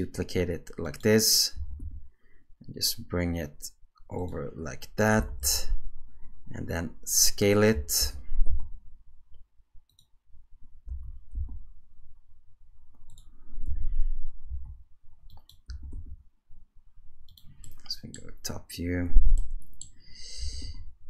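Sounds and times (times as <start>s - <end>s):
dull low thumps: 10.9s - 11.8s.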